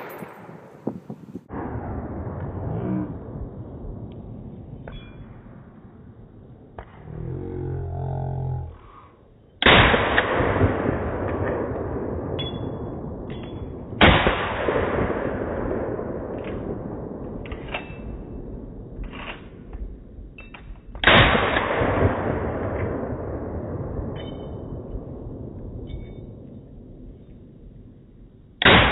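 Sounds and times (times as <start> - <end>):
rifle shots with echo: 9.6 - 17.5, 21.0 - 25.3, 28.6 - 28.9.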